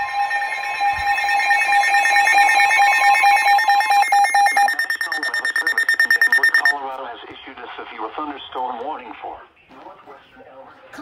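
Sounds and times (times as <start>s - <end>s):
rapid electronic beeping: 0.0s - 6.8s
steady high alert tone: 0.0s - 6.8s.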